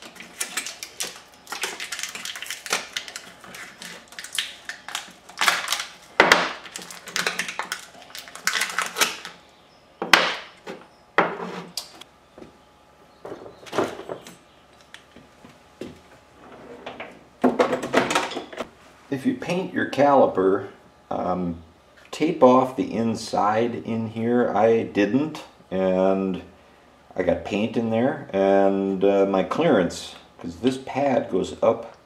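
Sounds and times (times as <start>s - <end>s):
plastic packaging crackling: 0.0s - 9.4s.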